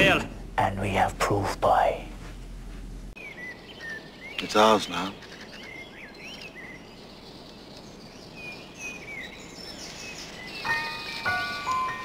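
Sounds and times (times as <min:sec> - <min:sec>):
birds chirping: 0:03.2 - 0:12.0
chiming note: 0:10.6 - 0:12.0.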